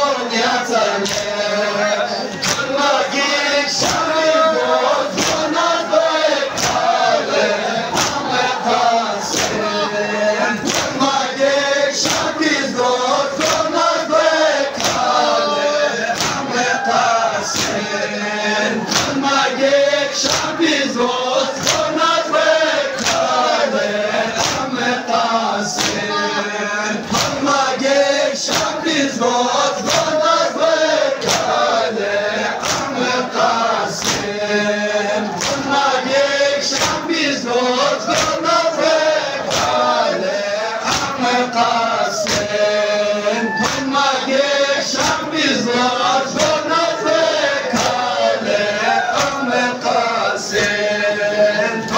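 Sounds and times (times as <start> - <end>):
crowd of men chanting: 0.0 - 51.9
chest-beating slaps: 1.0 - 1.4, 2.2 - 2.7, 3.8 - 4.2, 5.1 - 5.5, 6.5 - 7.0, 7.8 - 8.4, 9.3 - 9.7, 10.6 - 11.0, 12.0 - 12.4, 14.7 - 15.2, 16.1 - 16.5, 17.4 - 17.9, 18.8 - 19.3, 20.2 - 20.6, 22.9 - 23.4, 24.4 - 24.8, 25.7 - 26.1, 27.0 - 27.5, 28.5 - 28.8, 31.2 - 31.7, 32.5 - 33.0, 33.9 - 34.4, 35.3 - 35.8, 36.7 - 37.1, 38.0 - 38.5, 39.4 - 40.0, 40.8 - 41.3, 42.2 - 42.7, 43.6 - 44.0, 45.0 - 45.3, 46.3 - 46.7, 47.7 - 48.2, 49.1 - 49.5.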